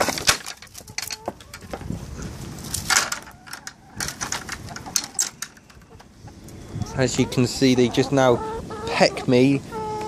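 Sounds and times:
wooden gate knocking and clattering: 0.0 - 1.8, 2.9 - 6.1
gate scraping: 2.8 - 6.0.

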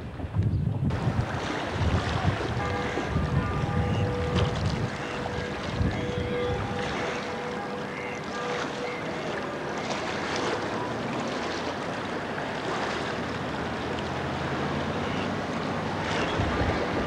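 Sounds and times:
wind on microphone: 0.0 - 7.8, 15.4 - 17.0
rippling lake water: 0.0 - 17.0.

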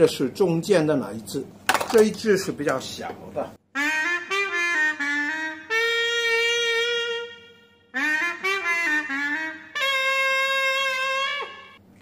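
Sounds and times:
single-reed pipe melody: 3.8 - 11.8.

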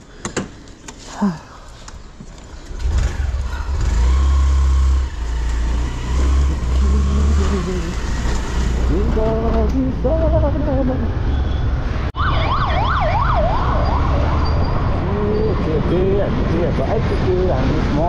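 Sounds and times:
vehicle engine low rumble: 2.6 - 12.0.

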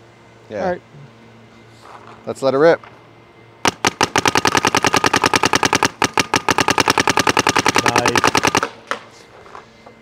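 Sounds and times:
paintball marker rapid firing: 3.6 - 9.0.

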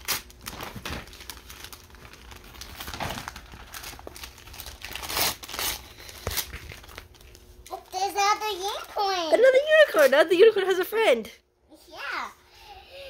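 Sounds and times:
wrapping paper crinkling and tearing: 0.0 - 9.2.

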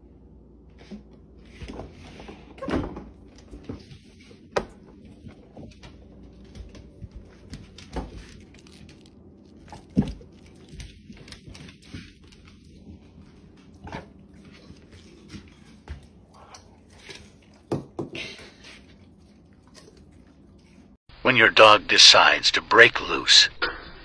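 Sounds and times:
dogs crunching food: 5.2 - 20.9.

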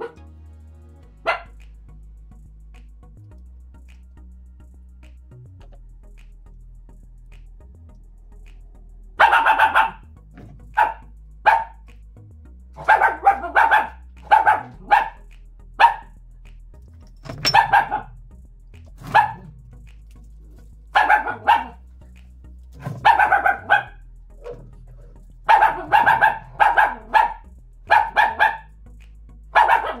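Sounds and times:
dog barking loudly: 1.2 - 1.5, 9.2 - 10.0, 10.8 - 11.8, 12.8 - 15.2, 15.8 - 16.1, 17.3 - 18.1, 19.0 - 19.5, 21.0 - 21.8, 22.8 - 24.8, 25.5 - 28.7, 29.5 - 30.0.

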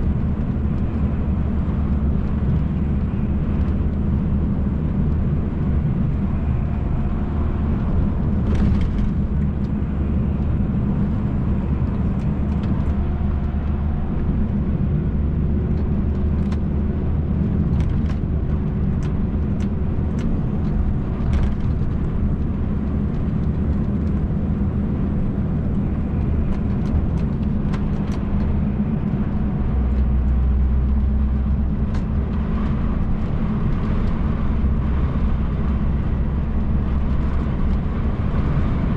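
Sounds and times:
road noise: 0.0 - 38.9
truck diesel engine droning: 0.0 - 38.9.

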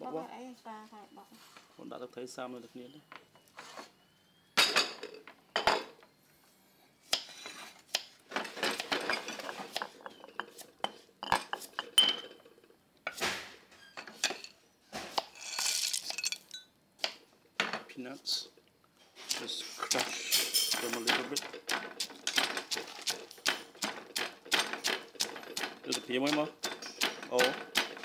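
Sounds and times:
bowls scraping and clinking: 8.8 - 12.6, 15.3 - 16.7, 19.8 - 21.0.

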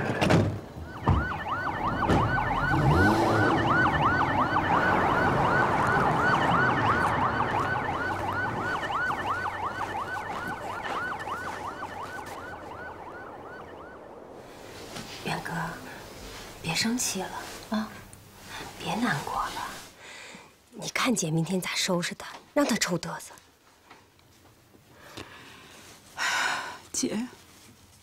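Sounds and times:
police siren yelping: 0.1 - 14.6.

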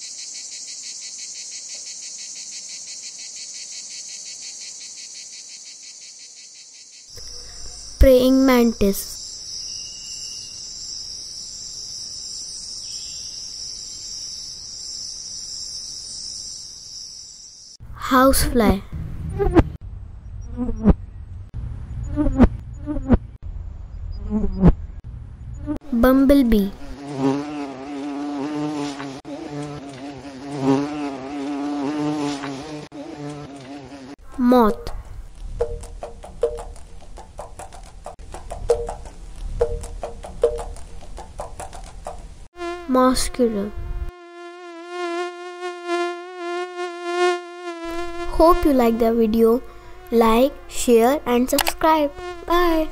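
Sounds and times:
bumblebee buzzing: 0.0 - 17.8, 22.0 - 23.3, 25.6 - 41.1, 41.8 - 52.9
high-pitched insect trill: 0.0 - 17.8.

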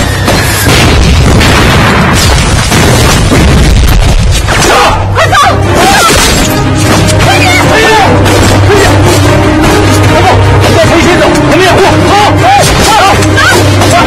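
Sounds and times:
loud booming explosions: 0.0 - 4.6
people shouting: 4.6 - 14.0.

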